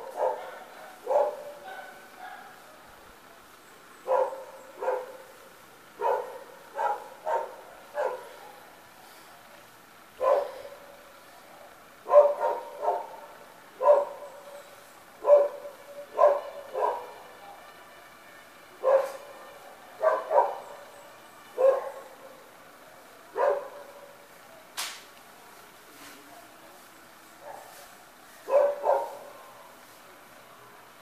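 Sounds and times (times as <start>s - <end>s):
dog barking: 0.0s - 2.8s, 4.0s - 5.4s, 6.0s - 8.7s, 10.2s - 11.0s, 12.0s - 14.5s, 15.2s - 17.2s, 18.8s - 19.4s, 20.0s - 20.7s, 21.6s - 22.2s, 23.3s - 24.2s, 27.4s - 27.8s, 28.4s - 29.6s.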